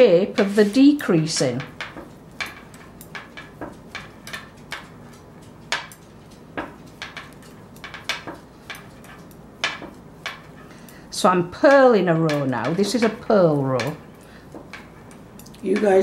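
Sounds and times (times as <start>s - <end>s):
knitting needles clicking: 0.0s - 16.0s.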